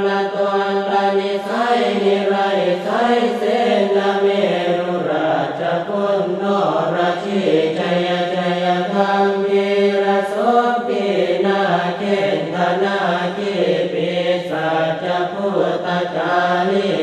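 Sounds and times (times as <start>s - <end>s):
monotone chanting: 0.0s - 17.0s.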